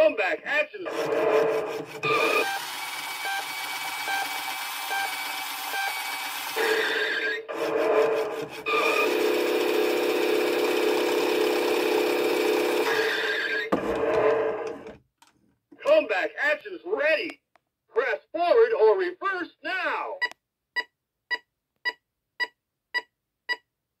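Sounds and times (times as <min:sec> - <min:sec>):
toy electronic sound clips: 0:02.0 - 0:07.3.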